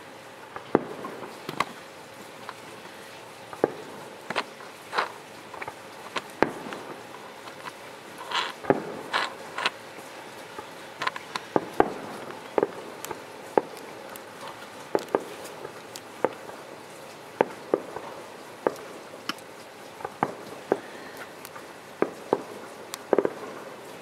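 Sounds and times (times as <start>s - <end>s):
distant fireworks bursting: 0.0s - 24.0s.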